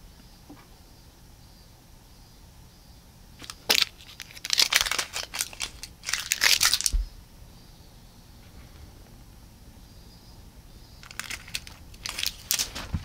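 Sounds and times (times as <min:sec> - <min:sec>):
feather toy crinkling and rustling: 0:03.4 - 0:07.0, 0:11.0 - 0:13.0.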